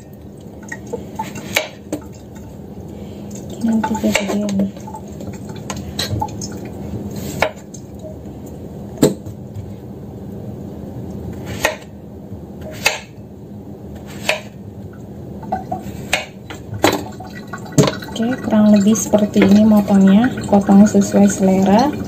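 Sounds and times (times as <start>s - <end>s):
knife slicing melon: 14.0s - 14.5s.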